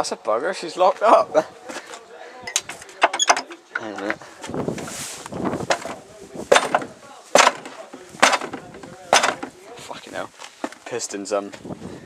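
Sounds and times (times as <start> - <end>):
rustling hiss: 4.2 - 8.2
sharp knocks on engine: 5.7 - 9.6.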